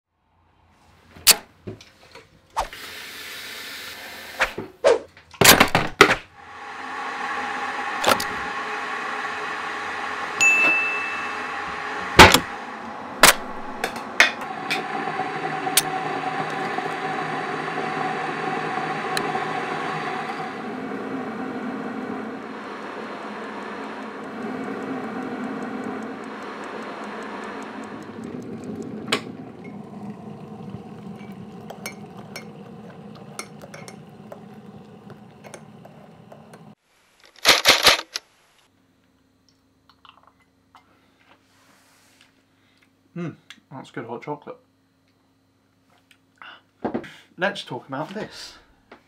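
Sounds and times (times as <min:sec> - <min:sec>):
electric kettle heating water: 0:06.3 - 0:36.8
short ringing ding: 0:10.4 - 0:11.6.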